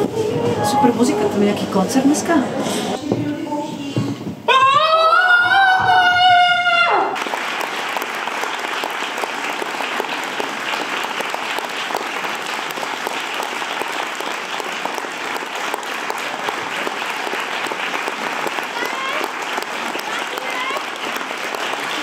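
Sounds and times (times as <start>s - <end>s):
audience applauding: 6.2s - 22.0s.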